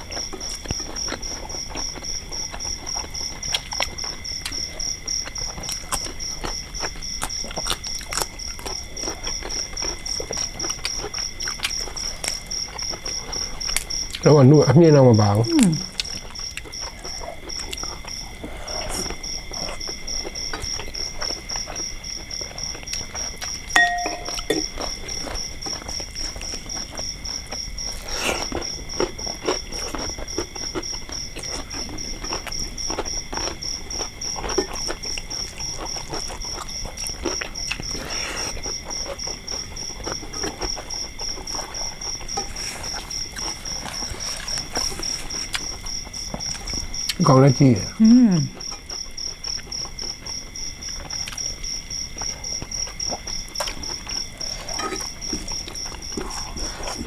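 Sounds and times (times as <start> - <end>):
person chewing food: 0.0 - 14.3, 15.1 - 47.2, 48.4 - 57.0
night insects chirping: 0.0 - 57.0
dishware clink: 23.8 - 24.7.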